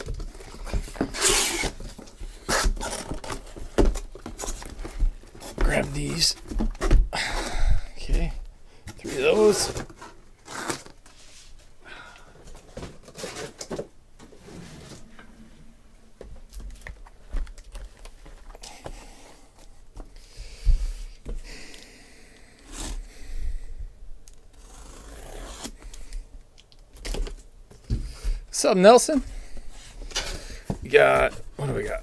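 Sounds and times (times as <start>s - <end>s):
cardboard boxes sliding: 14.2s - 15.3s.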